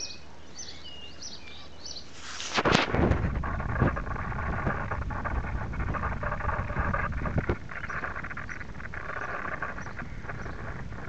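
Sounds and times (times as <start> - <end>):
small birds chirping: 0.0 - 2.6, 3.3 - 11.0
microphone handling noise: 2.2 - 11.0
wind rumble: 2.5 - 11.0.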